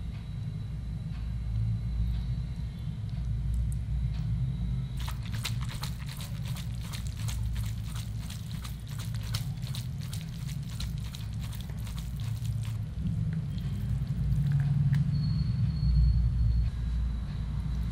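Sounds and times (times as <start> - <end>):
steady low hum: 0.0 - 17.9
noodles tossed in metal colander: 5.0 - 12.8.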